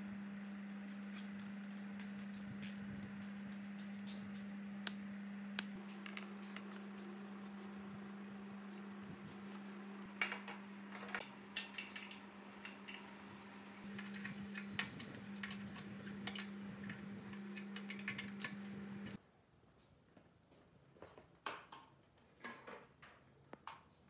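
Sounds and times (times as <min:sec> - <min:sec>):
steady low hum: 0:00.0 - 0:19.2.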